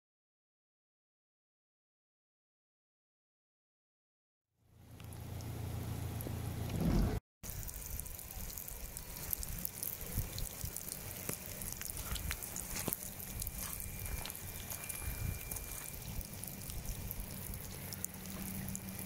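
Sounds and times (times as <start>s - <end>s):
low rumble: 4.8s - 19.0s
rain splashing into muddy water: 7.4s - 19.0s.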